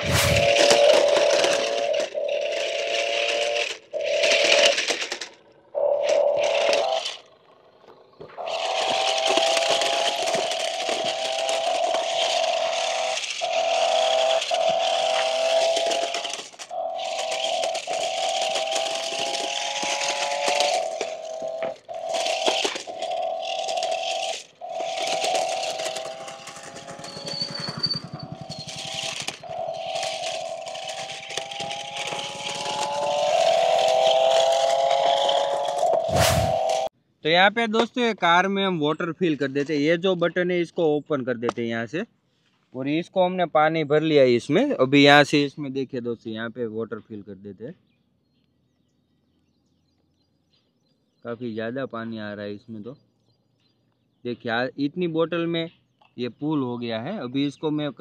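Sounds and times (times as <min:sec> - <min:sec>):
electric motors whining: 0:00.0 - 0:36.9
wheels crunching over gravel: 0:00.0 - 0:36.9.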